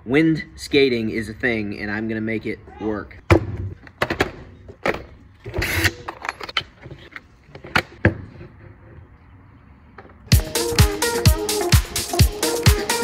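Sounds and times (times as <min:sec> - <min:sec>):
electronic dance music: 0:10.3 - 0:13.0.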